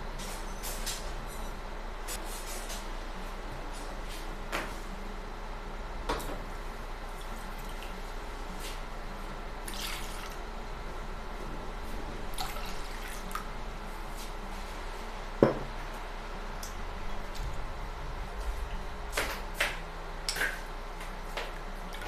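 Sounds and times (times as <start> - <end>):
steady low hum: 0.0 - 22.0
liquid pouring and splashing: 9.7 - 10.4.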